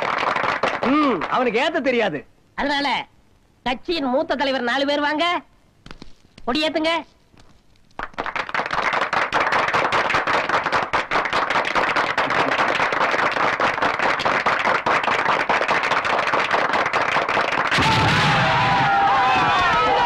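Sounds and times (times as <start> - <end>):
firecrackers cracking: 7.7 - 20.0.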